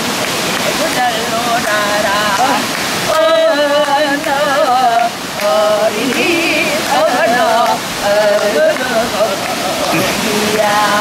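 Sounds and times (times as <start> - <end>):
rushing mountain stream: 0.0 - 11.0
women singing folk song: 0.6 - 11.0
hand claps: 3.8 - 6.3, 7.6 - 10.7.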